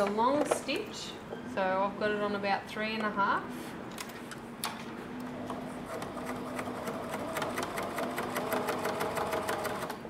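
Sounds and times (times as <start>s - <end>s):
sewing machine motor hum: 5.2s - 10.0s.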